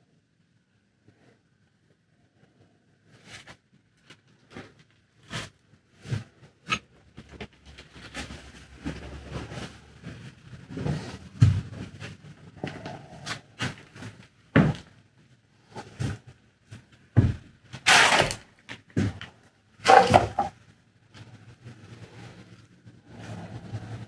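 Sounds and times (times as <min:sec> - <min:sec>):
footsteps: 0:07.4 - 0:14.9, 0:19.0 - 0:20.5.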